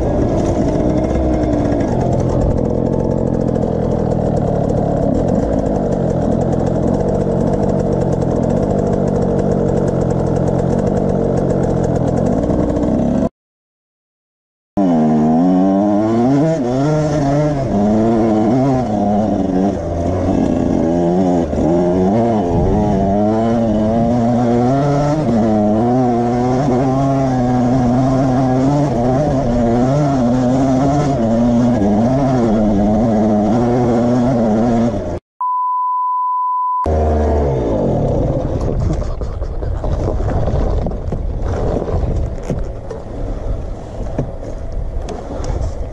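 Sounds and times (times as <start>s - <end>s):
dirt bike engine revving: 0.0s - 13.3s, 14.8s - 35.2s, 36.9s - 39.0s
steady beep tone: 35.4s - 36.9s.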